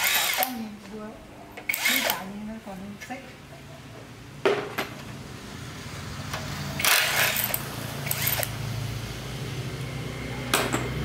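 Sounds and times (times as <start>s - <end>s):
cordless drill running in bursts: 0.0s - 0.6s, 1.7s - 2.2s, 6.8s - 8.6s.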